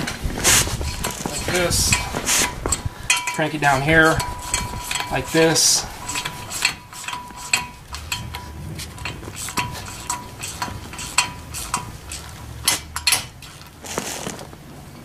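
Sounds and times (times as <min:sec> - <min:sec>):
wrench metallic clicks and clinks: 0:02.7 - 0:13.7.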